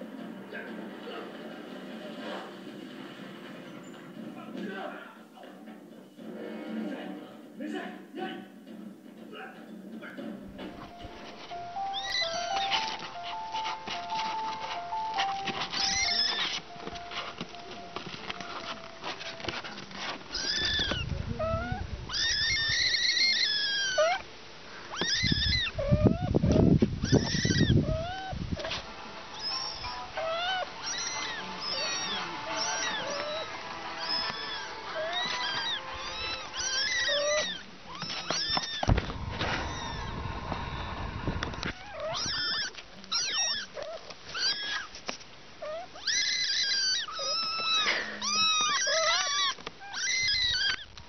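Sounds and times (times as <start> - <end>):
kitten mewing: 11.8 - 16.6, 19.5 - 24.3, 24.9 - 40.3, 41.6 - 45.0, 45.6 - 50.9
low rumble: 39.0 - 41.6.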